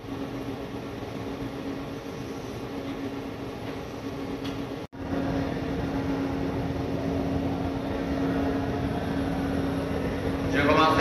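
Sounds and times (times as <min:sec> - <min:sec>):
electric train equipment humming: 0:00.0 - 0:11.0.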